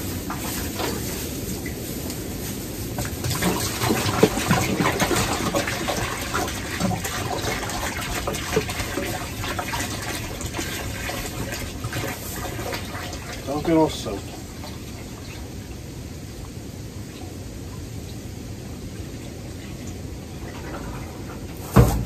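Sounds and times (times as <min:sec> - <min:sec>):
water pouring into rubber pan: 0:03.0 - 0:15.6.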